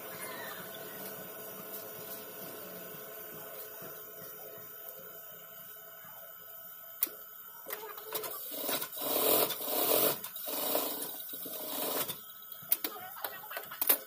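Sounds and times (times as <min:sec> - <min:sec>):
sewing machine stitching: 0:08.0 - 0:12.2.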